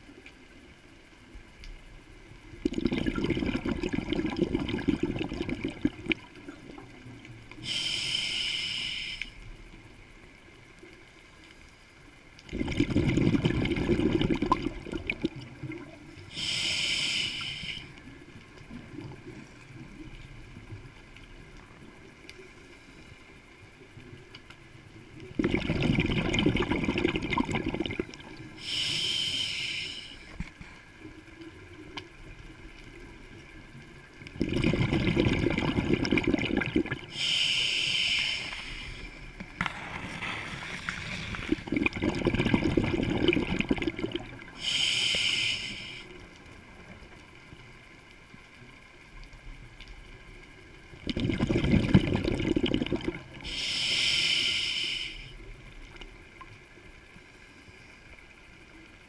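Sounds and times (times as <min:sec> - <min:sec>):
bubbling exhaled air underwater: 0:02.5 - 0:09.2, 0:12.4 - 0:20.9, 0:25.2 - 0:30.4, 0:34.0 - 0:47.1, 0:50.8 - 0:56.6
regulator inhalation hiss: 0:07.6 - 0:09.5, 0:16.3 - 0:18.0, 0:28.6 - 0:30.4, 0:37.1 - 0:39.3, 0:44.6 - 0:46.2, 0:53.4 - 0:55.5.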